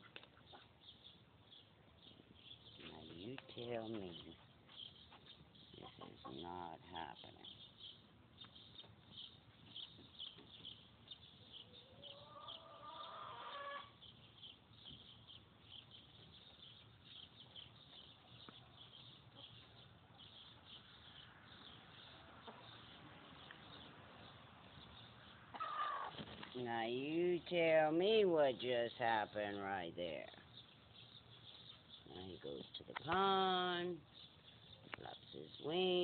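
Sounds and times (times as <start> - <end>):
faint high-pitched chirping: 0.0 - 36.0
hen calling: 11.6 - 14.0, 25.5 - 26.2.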